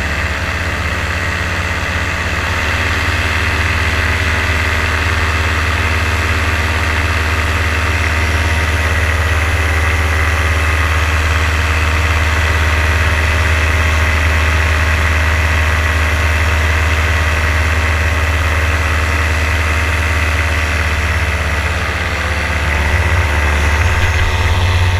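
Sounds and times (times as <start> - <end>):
two-stroke engine running: 0.0 - 24.9.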